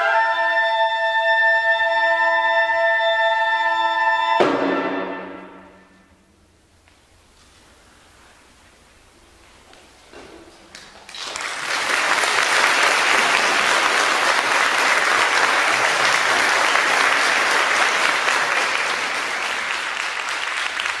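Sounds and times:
audience applause: 0:10.7 - 0:21.0.

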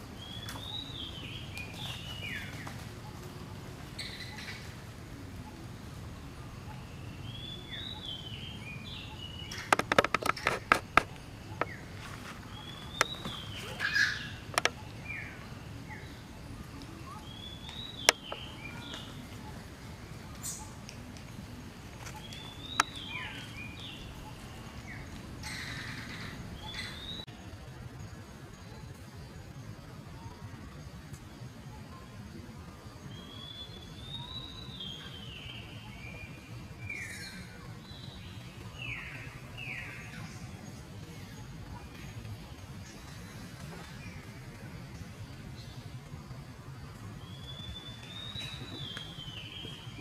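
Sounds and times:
steady low background noise: 0:00.0 - 0:50.0
high chirping animal calls: 0:06.6 - 0:16.1
sharp clicks and snaps: 0:09.6 - 0:11.8
whistled bird calls: 0:12.5 - 0:19.6, 0:33.1 - 0:40.5, 0:47.2 - 0:50.0.

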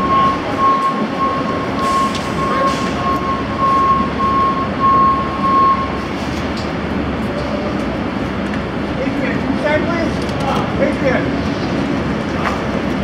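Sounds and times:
electronic warning beeper: 0:00.0 - 0:06.0
bus engine idling: 0:00.0 - 0:13.0.

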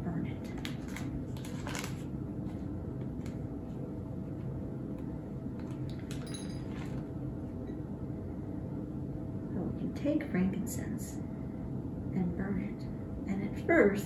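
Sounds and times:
ringing clink: 0:06.1 - 0:06.9.

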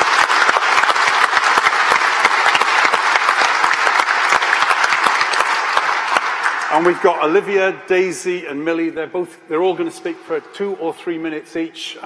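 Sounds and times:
large audience applauding: 0:00.0 - 0:07.4.

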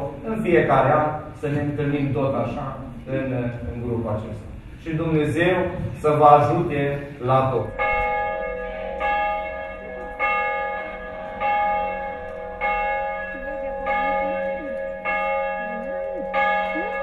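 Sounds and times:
church bell striking: 0:06.5 - 0:17.0
faint voices: 0:13.1 - 0:17.0.

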